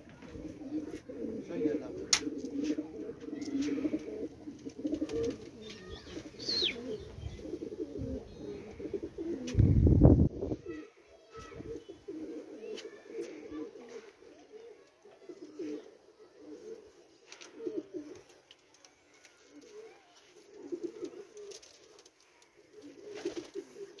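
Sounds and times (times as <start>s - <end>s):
pigeons cooing: 0.0s - 18.4s, 19.2s - 24.0s.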